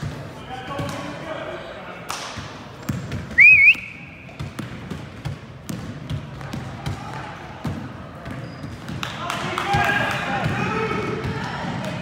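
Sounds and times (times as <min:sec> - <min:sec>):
basketball bouncing on wooden floor: 0:02.8 - 0:03.4, 0:04.3 - 0:09.0.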